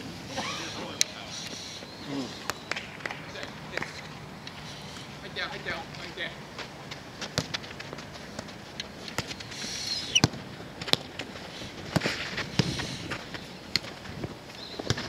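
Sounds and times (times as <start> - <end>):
soccer ball kicks: 7.2 - 9.5, 10.1 - 11.1.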